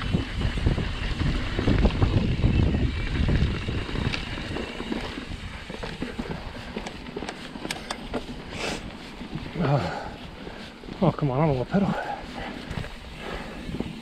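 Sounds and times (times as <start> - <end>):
wind on microphone: 0.0 - 7.2, 11.9 - 14.0
bike knocks and rattles: 0.0 - 8.5
bike tyre rumble: 0.0 - 14.0.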